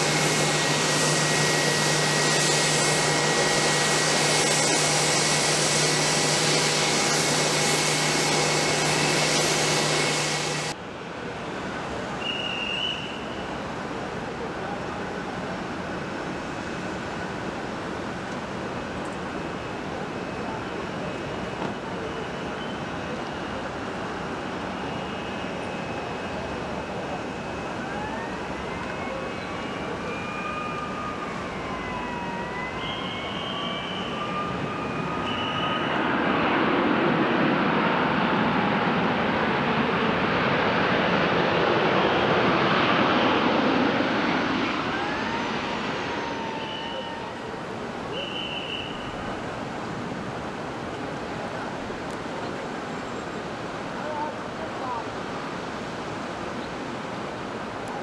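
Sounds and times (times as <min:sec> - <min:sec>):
distant jet engines landing: 0:00.0 - 0:58.0.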